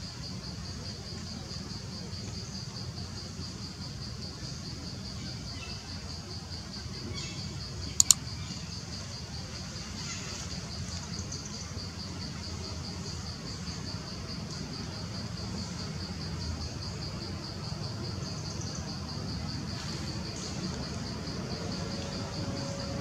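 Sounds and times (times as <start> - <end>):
insects trilling: 0.0 - 23.0
sharp clicks: 8.0 - 8.2.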